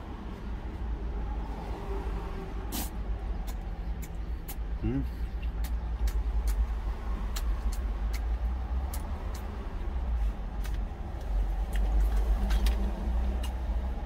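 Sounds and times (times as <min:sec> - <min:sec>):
person chewing food: 0:03.3 - 0:14.0.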